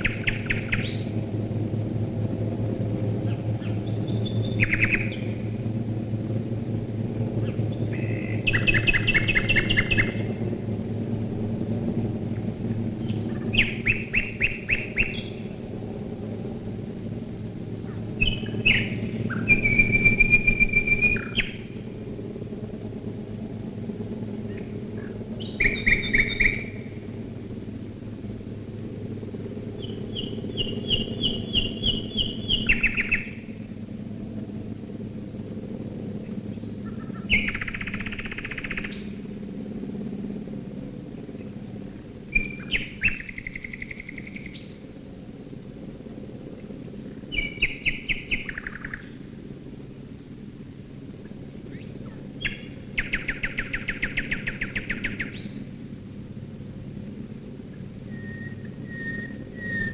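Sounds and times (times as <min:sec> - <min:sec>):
nightingale singing: 0:00.0 - 0:01.1, 0:03.3 - 0:05.5, 0:07.4 - 0:10.4, 0:13.0 - 0:15.6, 0:18.2 - 0:21.8, 0:25.4 - 0:27.0, 0:29.8 - 0:33.6, 0:36.8 - 0:39.2, 0:42.2 - 0:44.8, 0:47.3 - 0:49.2, 0:51.7 - 0:55.6, 0:58.0 - 0:59.9
bomber engines droning overhead: 0:00.0 - 0:59.9.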